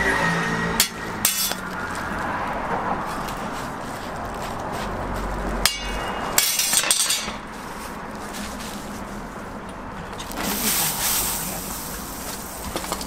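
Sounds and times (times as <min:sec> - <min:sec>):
metal spatula scraping steel: 0:00.6 - 0:01.6.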